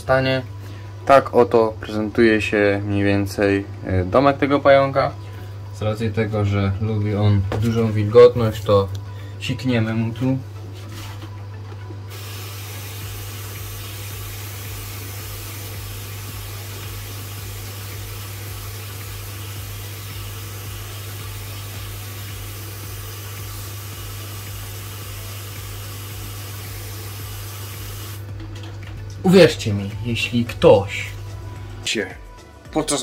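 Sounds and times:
pressure sprayer hissing: 12.1 - 28.3.

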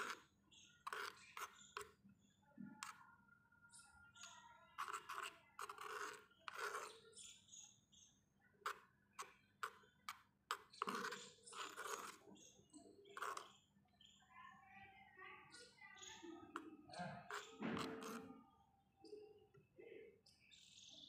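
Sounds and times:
spoon stirring thick food: 0.0 - 7.8, 8.6 - 13.7, 15.6 - 18.4.

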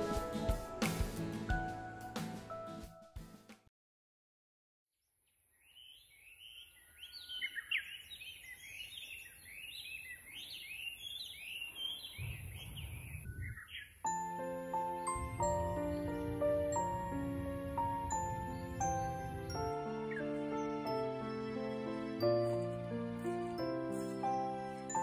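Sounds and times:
birds chirping and singing: 5.5 - 21.4, 22.3 - 25.0.

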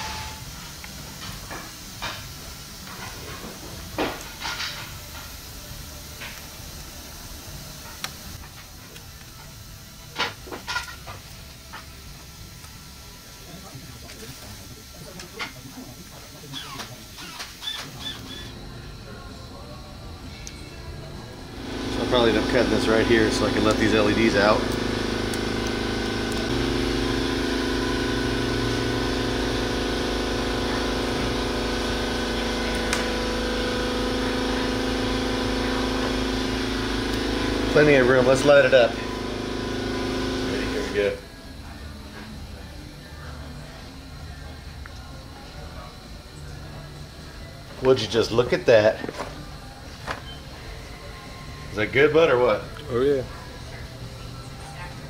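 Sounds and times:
motor humming: 16.2 - 42.0.

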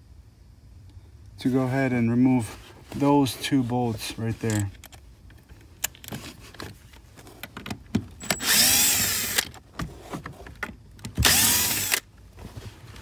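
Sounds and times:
small handling clicks: 4.4 - 8.5
power drill whirring: 8.2 - 9.5, 11.2 - 12.1.

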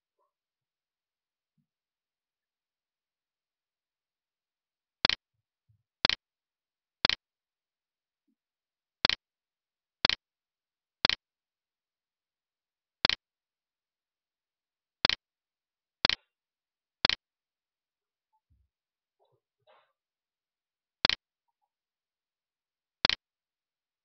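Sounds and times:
sharp ticks: 7.0 - 7.2, 9.0 - 9.2, 10.0 - 10.2, 11.0 - 11.2, 13.0 - 13.2, 15.0 - 15.2, 16.0 - 16.2, 17.0 - 17.2, 21.0 - 21.2, 23.0 - 23.2.

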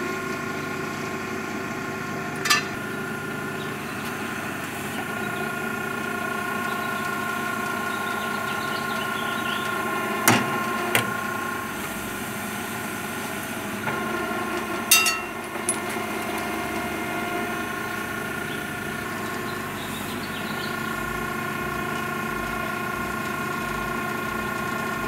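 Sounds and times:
hydraulic machine hum: 0.0 - 25.0
sharp metallic bang with ringing: 2.4 - 2.8, 14.9 - 15.4.

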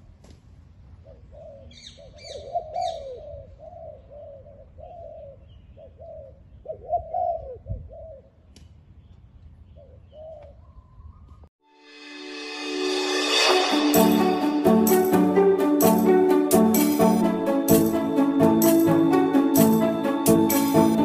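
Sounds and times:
dove cooing: 1.1 - 8.3.

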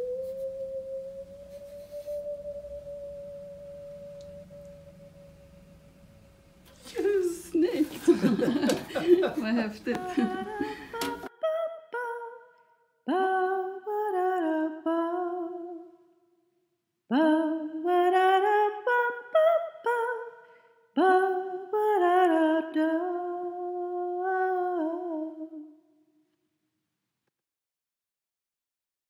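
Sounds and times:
short signature tune melody: 0.0 - 6.6.

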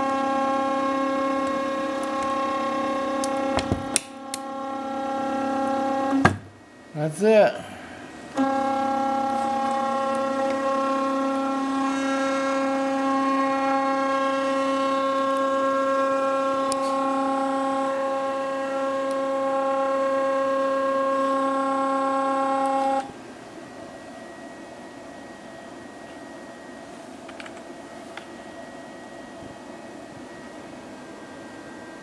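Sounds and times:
stepper motor whining: 0.0 - 6.4, 8.0 - 23.2
room hum: 0.0 - 32.0.

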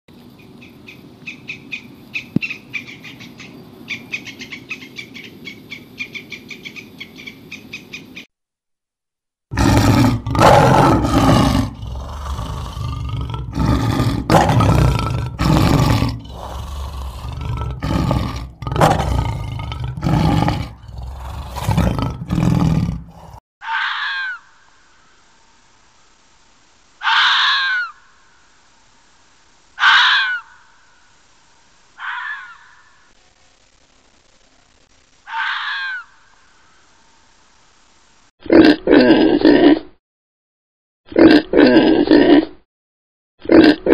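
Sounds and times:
lion roaring: 9.5 - 23.4.

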